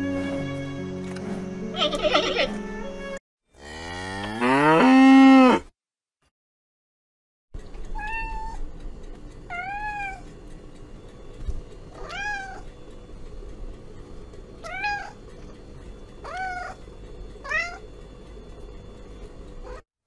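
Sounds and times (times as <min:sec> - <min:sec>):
steady low hum: 0:07.6 - 0:19.8
cat meowing: 0:08.0 - 0:08.6.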